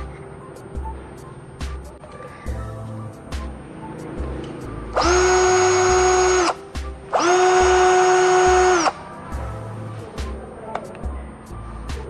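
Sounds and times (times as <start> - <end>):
cordless drill motor whine: 5.0 - 9.0.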